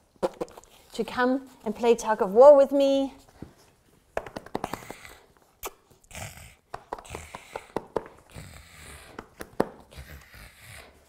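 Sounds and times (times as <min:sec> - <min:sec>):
puppy breathing and play noises: 0:03.2 - 0:11.0.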